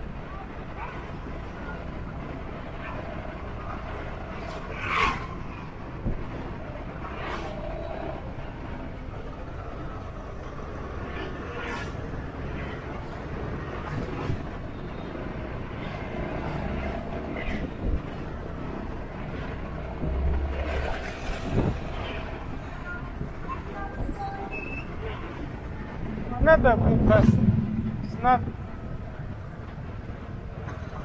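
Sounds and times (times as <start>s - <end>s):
motorbike and car engines: 0.0s - 31.0s
road rumble: 0.0s - 31.0s.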